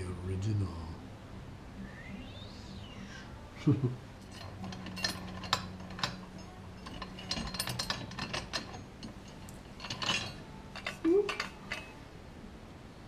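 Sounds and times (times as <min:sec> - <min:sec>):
metal bolts clicking and clinking: 0:04.2 - 0:12.0.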